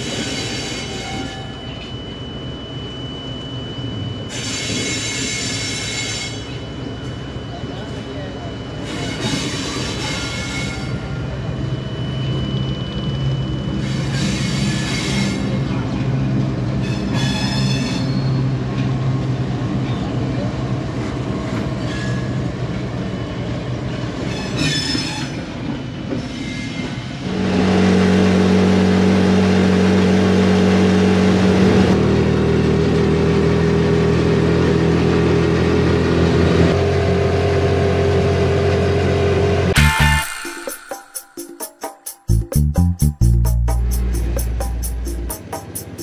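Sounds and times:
high wheel squeals: 0.0s - 15.7s, 16.8s - 18.6s, 21.8s - 23.2s, 23.9s - 25.6s
train rumbling past: 7.8s - 46.0s
diesel locomotive engine humming: 27.2s - 40.8s, 42.3s - 46.0s.

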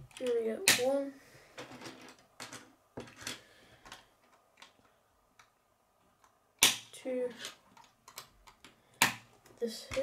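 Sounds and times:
plastic pieces clicking: 1.8s - 5.6s, 6.2s - 10.0s.

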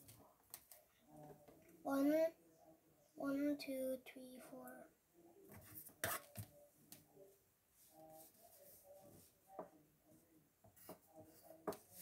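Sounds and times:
pencil scratching on paper: 5.5s - 6.4s, 10.8s - 12.0s.

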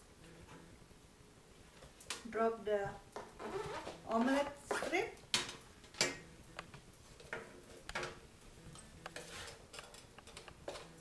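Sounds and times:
wooden spatula scraping a wok: 9.0s - 9.9s.

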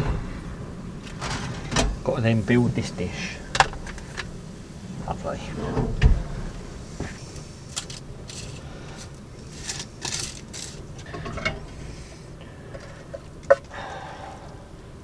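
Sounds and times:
metal tongs scraping a tray: 7.7s - 11.7s.

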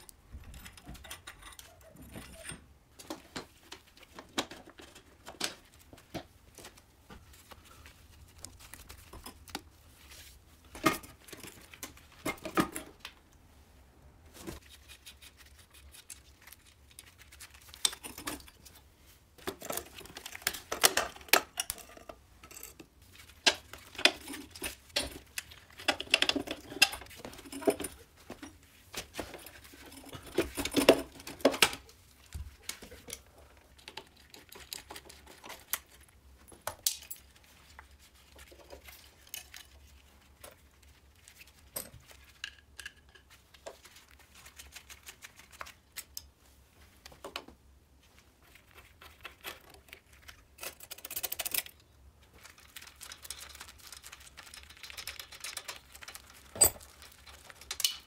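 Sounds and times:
metal parts clicking and rattling: 0.0s - 3.2s, 17.7s - 18.8s, 19.4s - 31.9s, 50.6s - 51.8s, 53.0s - 58.0s.

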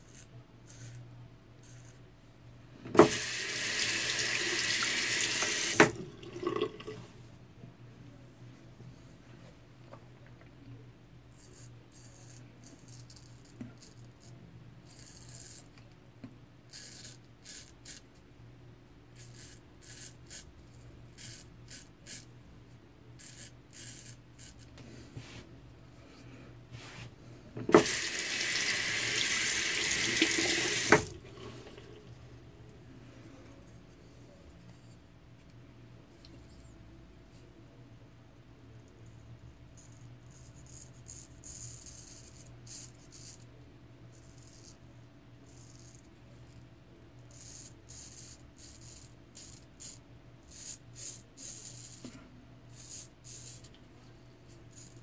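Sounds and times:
water tap running: 3.0s - 7.0s, 27.7s - 32.0s.

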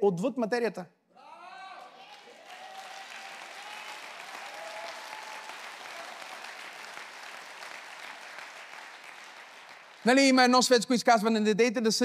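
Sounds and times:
congregation applauding: 1.6s - 10.7s.

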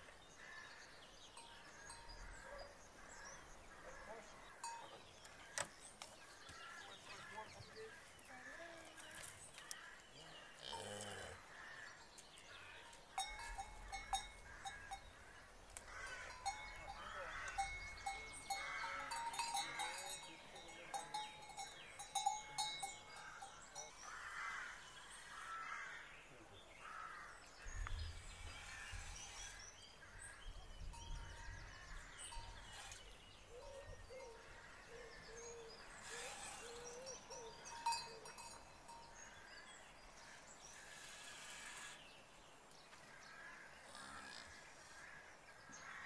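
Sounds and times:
metallic bell ringing: 13.2s - 15.1s, 16.3s - 24.1s, 37.0s - 39.2s.

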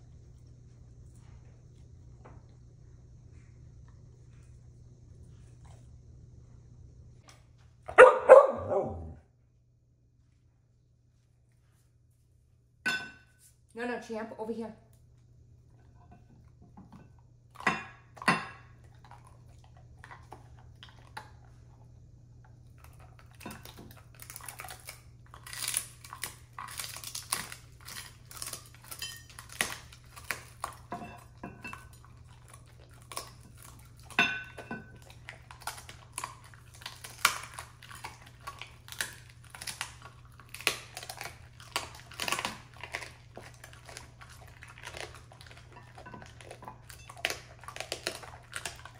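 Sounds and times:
teeth and food clinking on plates: 16.0s - 19.3s, 25.4s - 48.9s
dogs crunching hard food: 16.3s - 48.9s.

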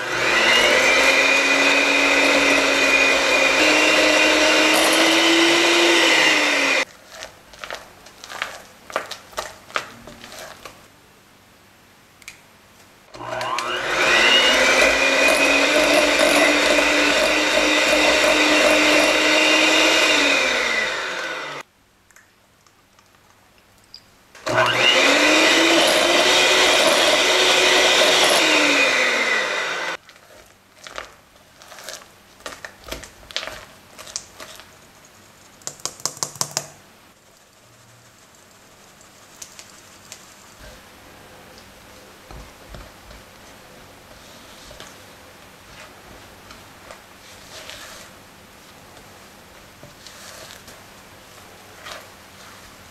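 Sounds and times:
electric hand mixer whining: 0.0s - 6.9s, 13.1s - 21.6s, 24.4s - 30.0s
spatula scraping glass bowl: 14.1s - 20.2s
sieve tapping while sifting flour: 35.6s - 36.8s.

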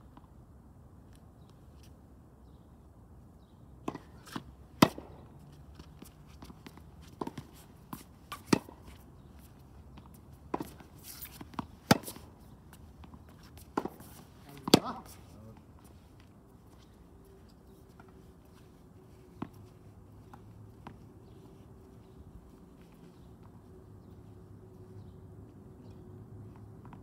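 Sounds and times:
tennis ball bouncing: 3.8s - 15.2s
tennis racket hitting ball: 3.9s - 5.1s, 7.2s - 8.9s, 10.0s - 15.2s.

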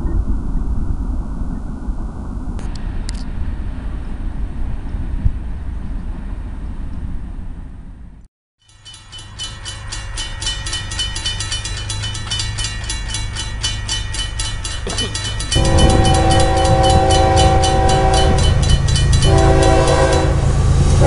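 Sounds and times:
low outdoor rumble: 0.0s - 8.3s
passing train rumble: 0.0s - 21.0s
railroad crossing bell ringing: 8.6s - 21.0s.

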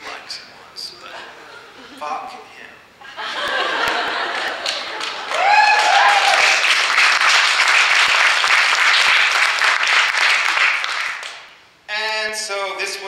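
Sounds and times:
audience applauding and cheering: 3.5s - 11.5s
loud whoop: 5.2s - 6.7s.

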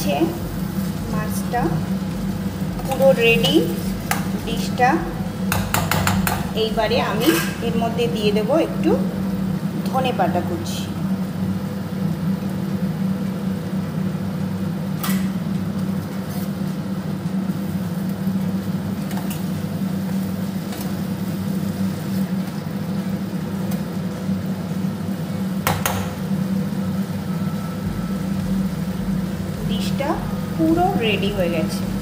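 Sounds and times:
steady low hum: 0.0s - 32.0s
spatula clicking on frying pan: 5.5s - 6.5s.

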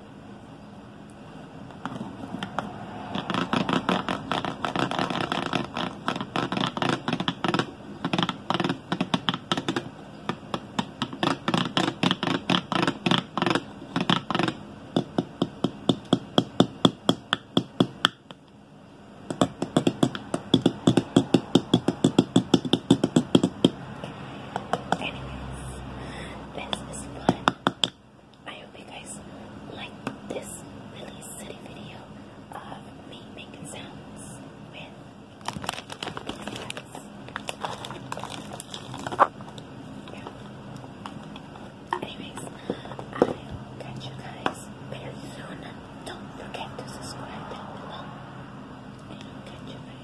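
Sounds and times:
plastic bottle tapped and scraped: 1.7s - 18.2s, 19.3s - 23.8s, 35.4s - 40.4s.

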